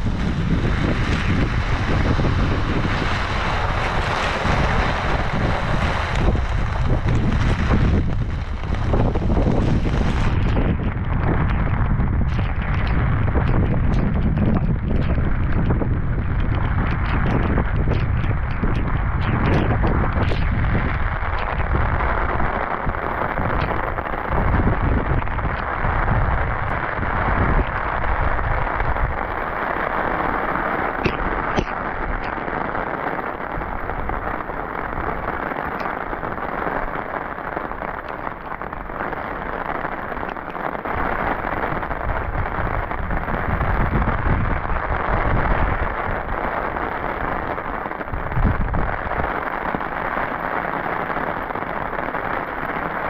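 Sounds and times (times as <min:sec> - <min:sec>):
heavy rain falling: 0:00.0 - 0:53.0.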